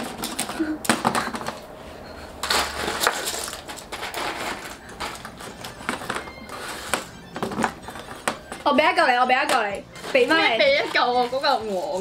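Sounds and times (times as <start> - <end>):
chopsticks clicking and scraping: 2.4 - 8.7, 9.4 - 12.0
sweets rattling in a box: 2.4 - 12.0.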